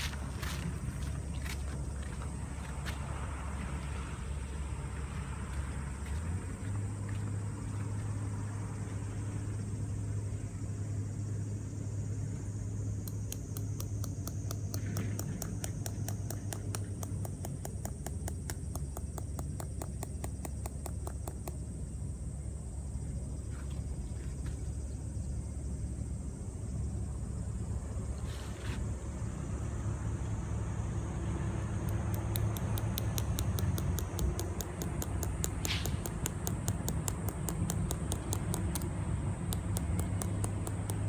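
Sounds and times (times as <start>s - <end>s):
sharp even ticking: 13.0s - 21.7s, 31.8s - 41.0s.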